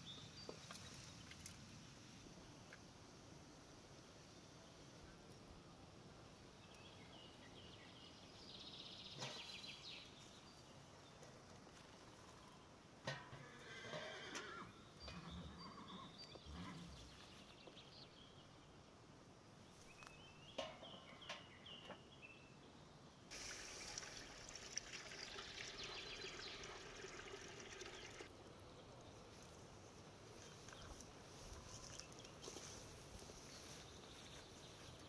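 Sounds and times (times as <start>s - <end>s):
water pouring into pot: 23.3s - 28.3s.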